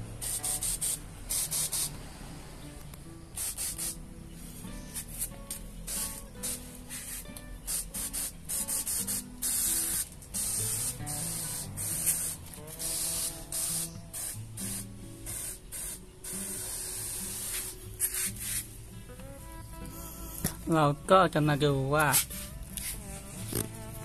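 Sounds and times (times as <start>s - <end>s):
pressure sprayer hissing: 0.0s - 2.5s, 3.4s - 4.0s, 4.7s - 18.8s.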